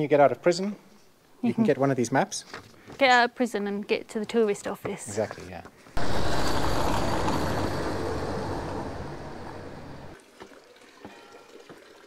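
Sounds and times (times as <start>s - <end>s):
car driving past: 6.0s - 10.2s.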